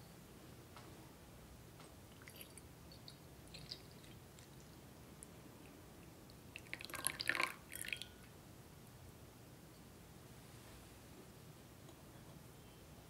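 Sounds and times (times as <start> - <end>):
drips and light glass clinks: 2.2 - 4.2, 6.6 - 8.3
tea pouring into glass mug: 2.2 - 4.6, 6.6 - 8.2.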